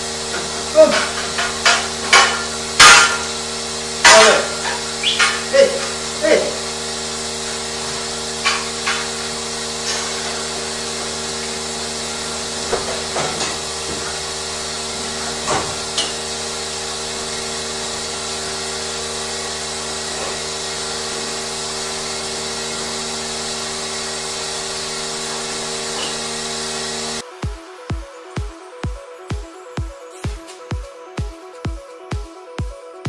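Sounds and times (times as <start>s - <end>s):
milking machinery hum and hiss: 0.0s - 32.9s
metallic knocks and clanks: 0.4s - 3.4s.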